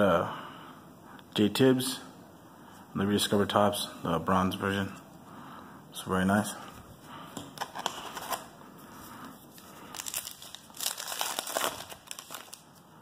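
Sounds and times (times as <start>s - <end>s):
foil wrapper crinkling: 9.6s - 12.8s
foil wrapper tearing: 9.9s - 12.8s.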